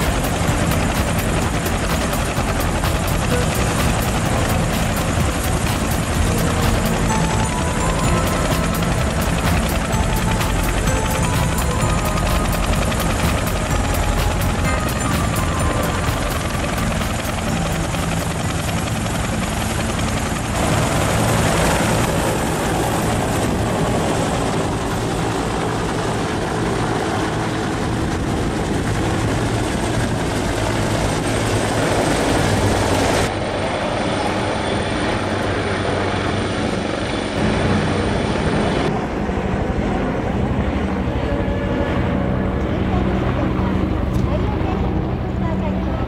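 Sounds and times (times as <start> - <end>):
helicopter rotor beating: 0.0 - 46.0
turbine engine whine: 0.0 - 46.0.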